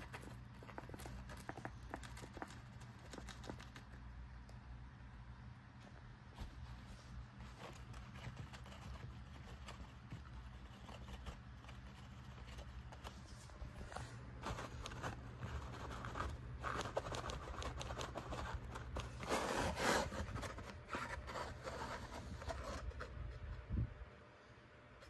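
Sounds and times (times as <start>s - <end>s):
paper rustling and scraping: 6.4s - 23.4s.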